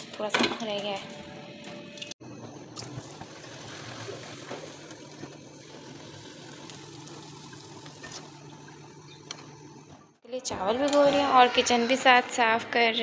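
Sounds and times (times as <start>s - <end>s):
oil sizzling: 2.8s - 10.1s.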